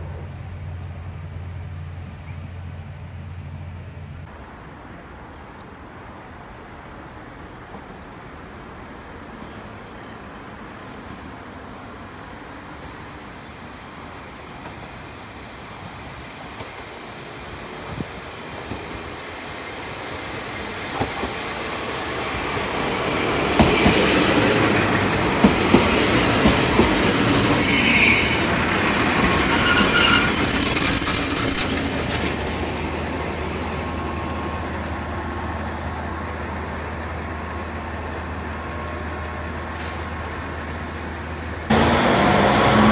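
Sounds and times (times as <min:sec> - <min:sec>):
diesel railcar rumble: 0:00.0 - 0:42.9
wheels clacking over rail joints: 0:22.3 - 0:30.0
wheel and brake squeal: 0:27.4 - 0:33.4, 0:34.0 - 0:34.8.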